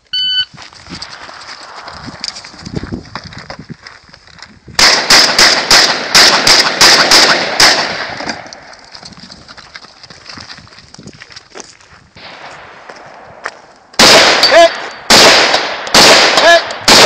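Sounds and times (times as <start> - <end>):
gunshot echo: 4.8 - 8.5, 12.2 - 17.0
shotgun shots: 4.8 - 8.5, 12.2 - 13.4, 14.0 - 17.0.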